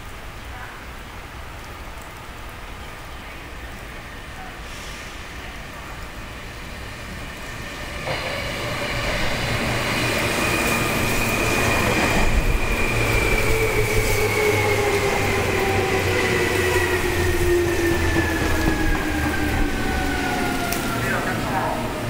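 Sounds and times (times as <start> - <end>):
train wheels rumbling on rails: 4.7 - 22.0.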